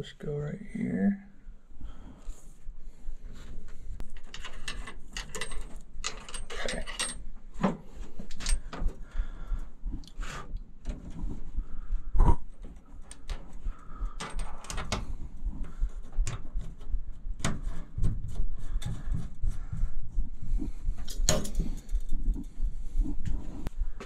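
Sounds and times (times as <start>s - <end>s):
metal clicks and knocks: 4.0s - 9.0s, 14.2s - 15.1s, 21.0s - 22.2s
low rumble: 8.6s - 24.0s.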